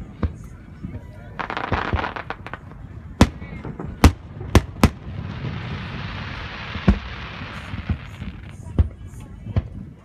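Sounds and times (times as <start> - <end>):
fireworks bursting: 1.4 - 9.0.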